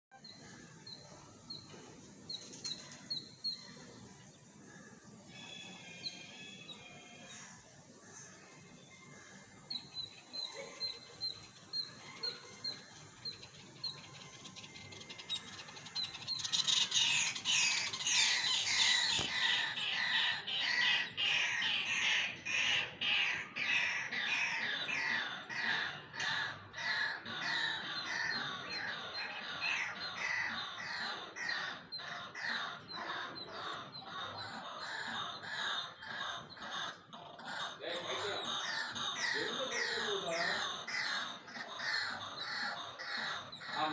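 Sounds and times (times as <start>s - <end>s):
kingfisher chattering call: 16.1s - 43.9s.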